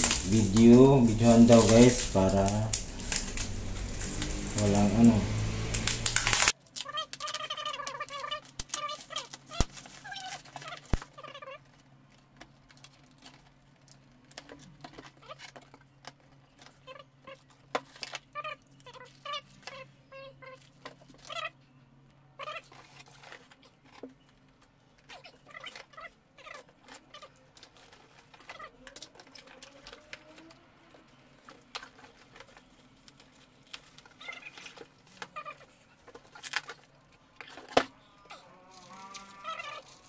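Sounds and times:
foam squeaking against cardboard: 0.0 - 6.6, 34.1 - 35.8
cardboard and plastic rustling: 0.0 - 19.8, 22.5 - 40.0.

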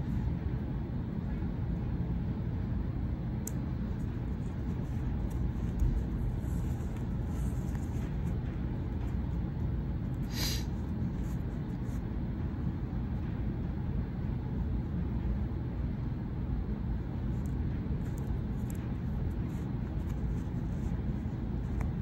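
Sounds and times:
low background rumble: 0.0 - 22.0.

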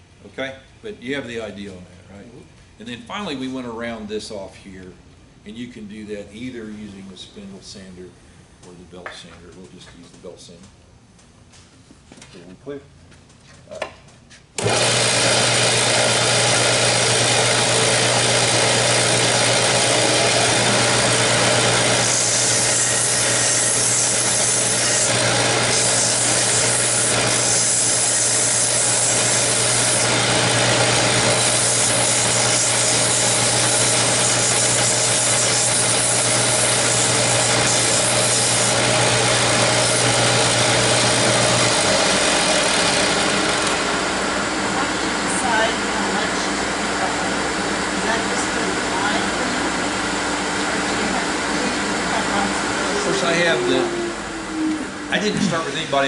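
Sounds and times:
belt sander motor running: 14.6 - 56.0
wood rasping on sanding belt: 17.8 - 43.8
low motor hum: 38.8 - 55.7.

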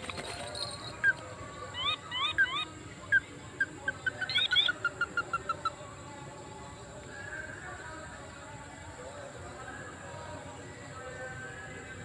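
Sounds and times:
crake calling: 0.0 - 5.9.

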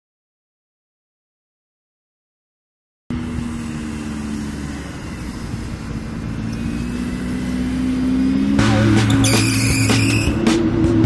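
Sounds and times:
car engine running: 3.1 - 11.0.

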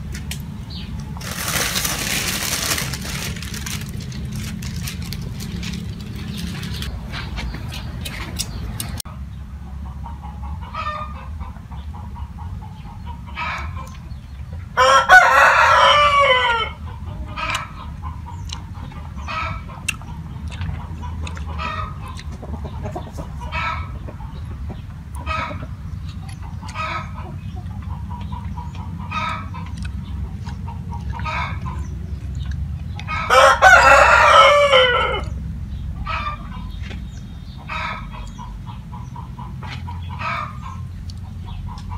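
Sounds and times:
chickens clucking: 0.0 - 41.9
rooster crowing: 14.8 - 16.8, 33.1 - 35.4.

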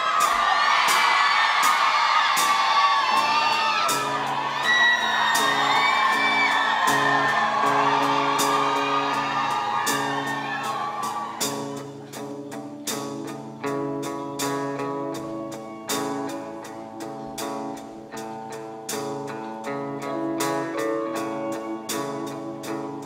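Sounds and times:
audience screaming and whooping: 0.0 - 12.5, 14.8 - 17.4, 20.0 - 23.0
live band playing: 0.0 - 23.0
electric guitar chords: 3.2 - 23.0.

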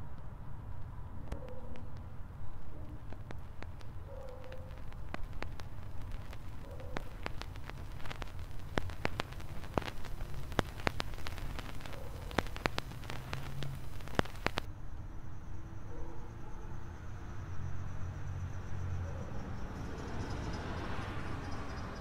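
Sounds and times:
vinyl crackles and pops: 0.0 - 14.7
hiss: 4.4 - 14.7.

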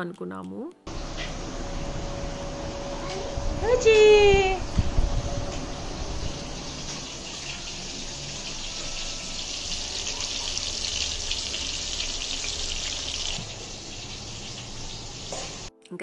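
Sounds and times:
running water pouring: 6.0 - 15.7.

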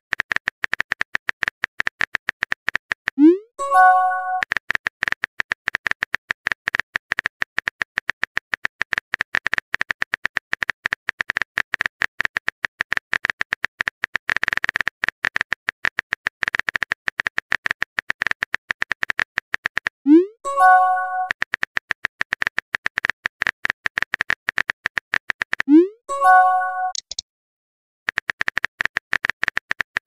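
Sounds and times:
keyboard typing clicks: 20.5 - 27.2.

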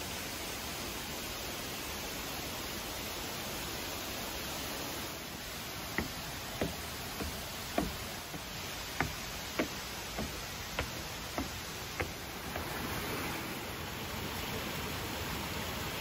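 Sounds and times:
steady hiss: 0.0 - 16.0
footsteps on wooden stairs: 5.4 - 13.2.

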